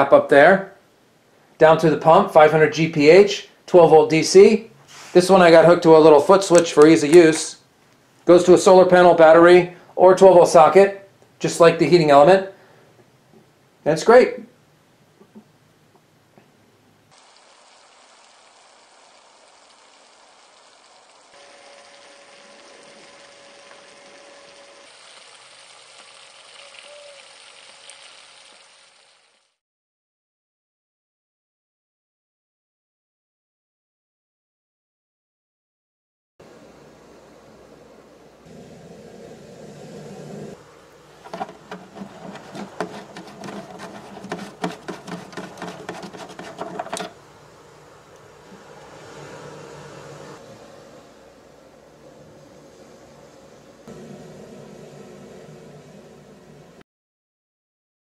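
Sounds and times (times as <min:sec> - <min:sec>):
shower water spraying: 0:17.1 - 0:29.6
pad scratching hard plastic: 0:41.2 - 0:47.2.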